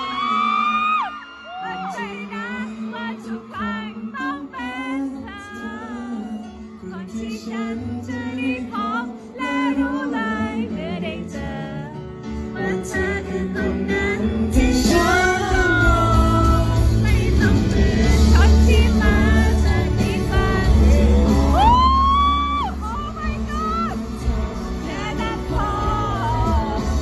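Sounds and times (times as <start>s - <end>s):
woman singing: 0.0s - 27.0s
band accompaniment: 10.8s - 27.0s.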